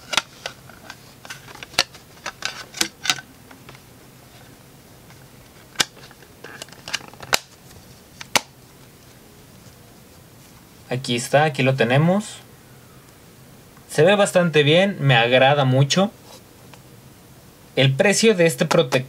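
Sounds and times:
light handling noise: 0:00.0 - 0:10.9
plastic phone case snapping on: 0:05.8 - 0:07.6, 0:08.2 - 0:08.6.

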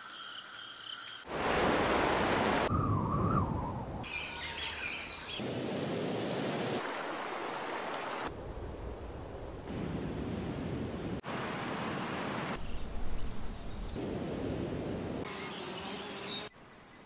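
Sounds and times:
rushing water: 0:01.2 - 0:02.8, 0:05.1 - 0:15.3
birds chirping: 0:02.7 - 0:05.4, 0:12.6 - 0:14.0.

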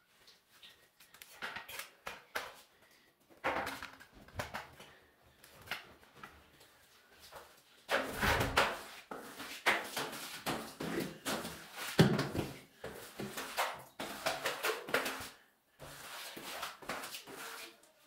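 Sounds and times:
broom bristles scraping tile: 0:07.9 - 0:17.9.

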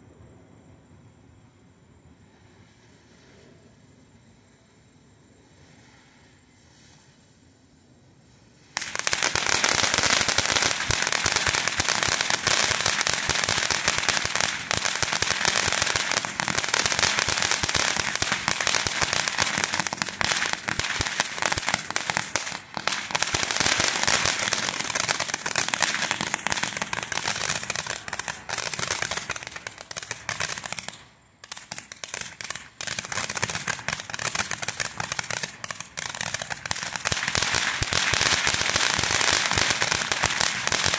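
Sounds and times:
fountain firework crackling: 0:08.6 - 0:40.9.

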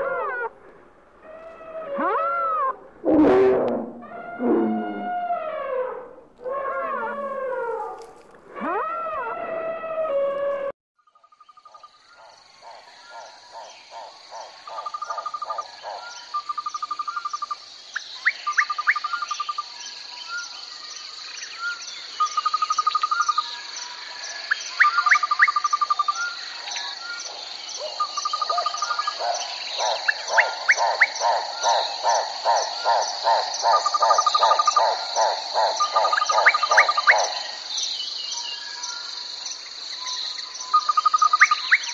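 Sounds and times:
quick rising chirps: 0:01.4 - 0:05.3
insects buzzing: 0:11.3 - 0:41.9.

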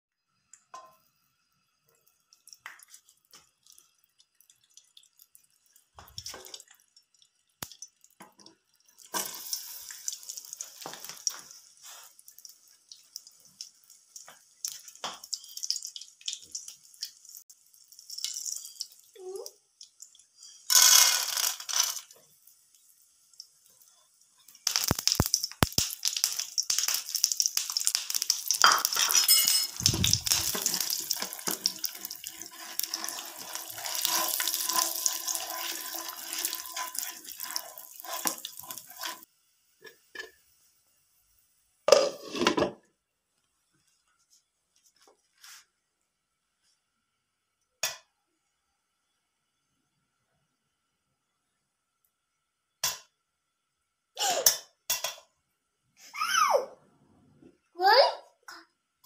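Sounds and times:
popcorn sizzling in oil: 0:00.2 - 0:42.8
clinks: 0:28.7 - 0:29.8
spatula scraping pan: 0:30.3 - 0:39.2.

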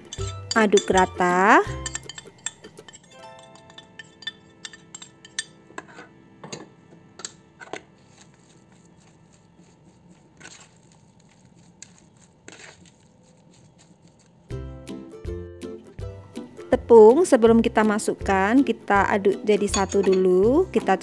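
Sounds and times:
metal spoon clinking on ceramic plate: 0:00.0 - 0:05.6, 0:19.7 - 0:20.3
spoon stirring minced meat: 0:00.0 - 0:06.1, 0:07.2 - 0:15.2.

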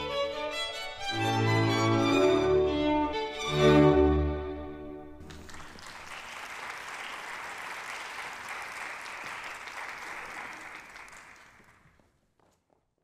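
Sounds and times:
audience applauding: 0:05.2 - 0:12.1.

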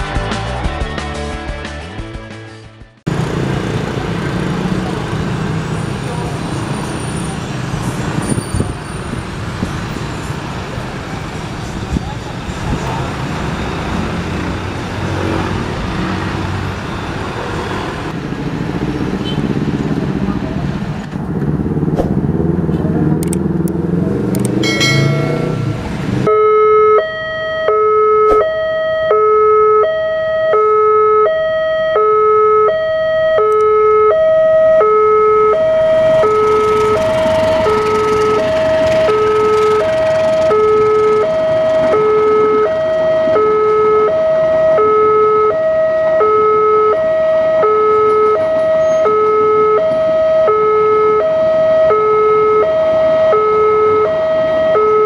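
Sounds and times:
road traffic noise: 0:02.6 - 0:55.0
level-crossing warning bell: 0:24.6 - 0:44.2.

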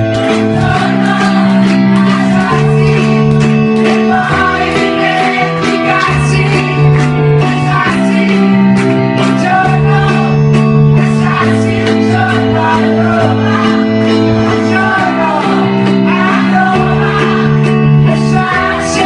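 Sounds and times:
instrumental accompaniment: 0:00.0 - 0:19.0
man singing into a microphone: 0:03.9 - 0:19.0.

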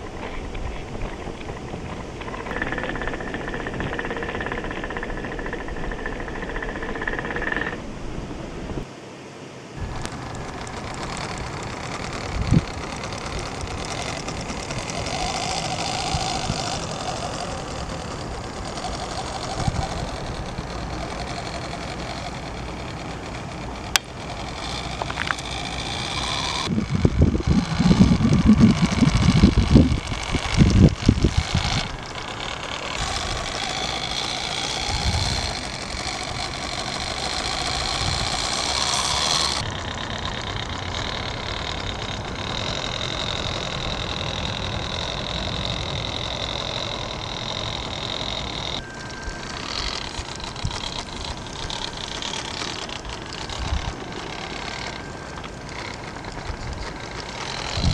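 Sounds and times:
rc car motor whining: 0:00.0 - 0:07.8, 0:09.8 - 0:57.9
low rumbling and thumps: 0:23.3 - 0:39.9.

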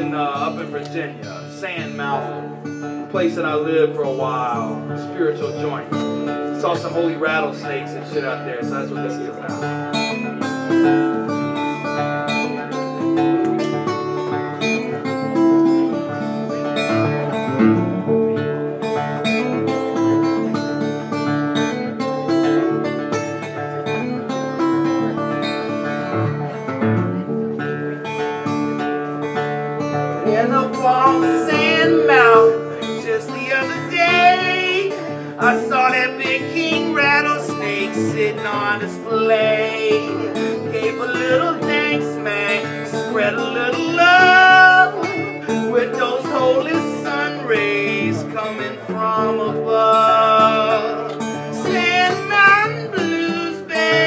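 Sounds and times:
acoustic guitar playing: 0:00.0 - 0:54.0
man singing: 0:30.2 - 0:54.0.

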